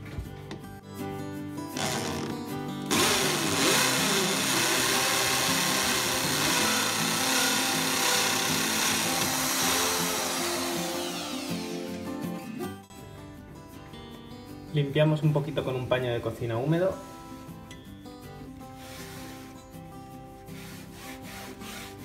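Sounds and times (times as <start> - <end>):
hammer drill boring into wall: 1.8 - 12.0.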